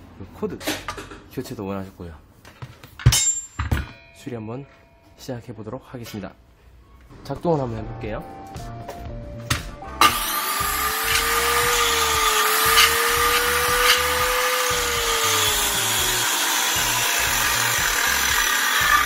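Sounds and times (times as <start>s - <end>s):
circular saw running: 10.0s - 19.0s.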